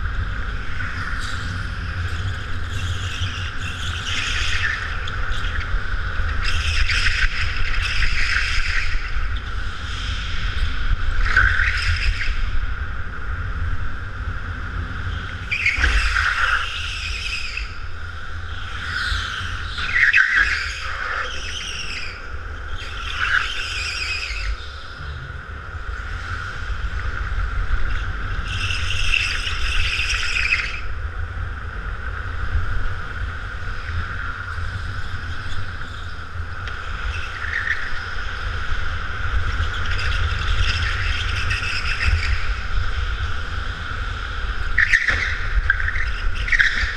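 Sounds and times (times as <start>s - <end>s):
go-kart engine whine: 0.0s - 46.9s
tyre squeal: 18.8s - 25.4s, 44.7s - 46.9s.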